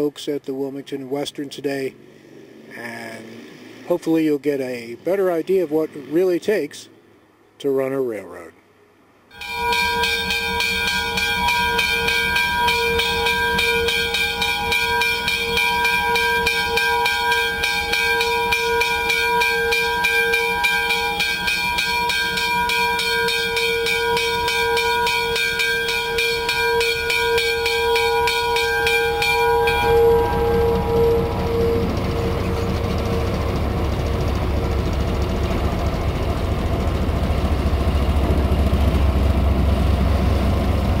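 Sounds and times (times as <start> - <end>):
locomotive bell ringing: 9.3 - 37.3
low engine rumble: 9.4 - 41.0.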